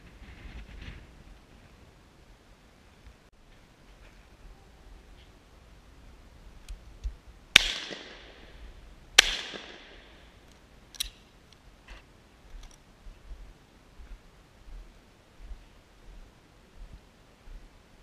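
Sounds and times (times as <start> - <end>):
shotgun shots: 7.6 - 8.6, 9.2 - 10.3.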